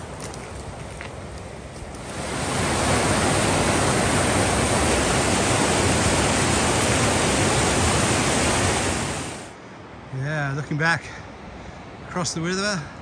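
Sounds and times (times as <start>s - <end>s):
whitewater rushing over rocks: 2.0s - 9.6s.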